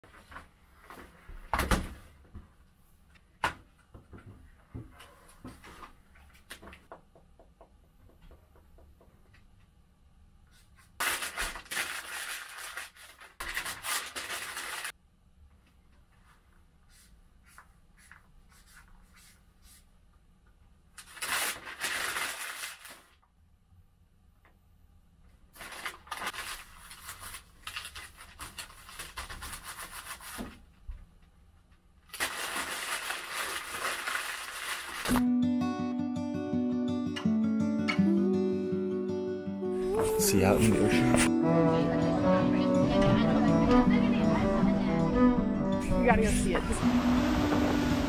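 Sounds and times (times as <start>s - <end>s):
paper being crumpled: 10.8s - 15.0s, 21.0s - 23.2s, 25.5s - 30.6s, 32.1s - 35.2s.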